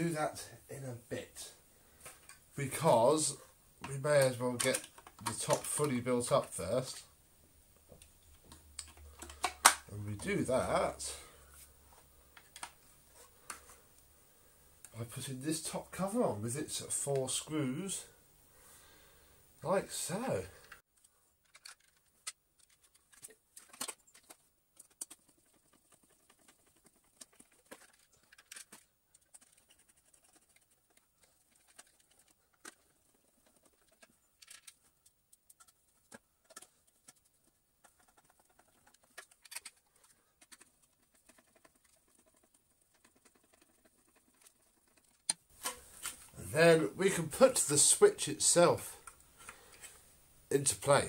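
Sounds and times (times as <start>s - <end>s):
screwdriver and plastic parts clicking: 3.8s - 6.6s, 8.0s - 9.9s, 12.3s - 12.8s, 21.4s - 46.2s.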